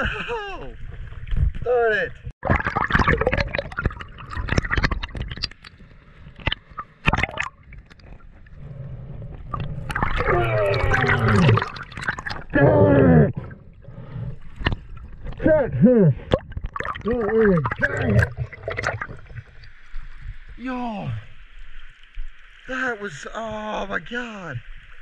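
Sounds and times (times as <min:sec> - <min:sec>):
water gurgling underwater: 0:02.2 - 0:20.6.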